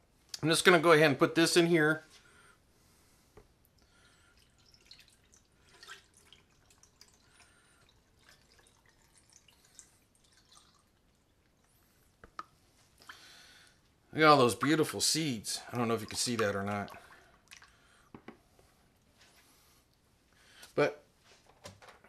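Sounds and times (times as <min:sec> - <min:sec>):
liquid dripping and splashing: 0:03.6 - 0:13.8, 0:15.6 - 0:18.3.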